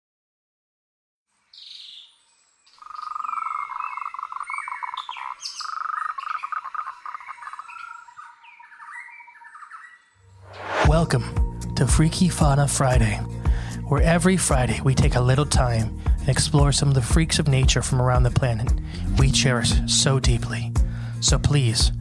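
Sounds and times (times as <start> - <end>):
birdsong chirps and trills: 1.4 - 10.4.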